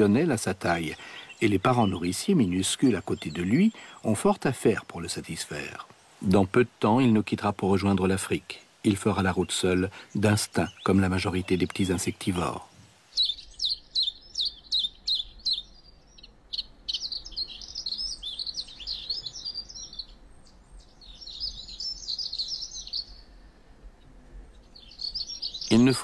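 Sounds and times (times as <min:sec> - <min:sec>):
rapid high bird twittering: 0:00.0 - 0:23.4, 0:24.5 - 0:26.0
songbirds calling: 0:00.0 - 0:26.0.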